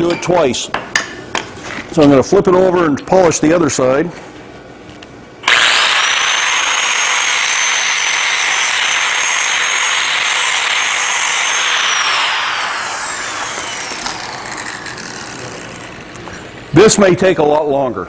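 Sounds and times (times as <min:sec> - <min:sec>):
angle grinder grinding steel: 0:05.4 - 0:16.7.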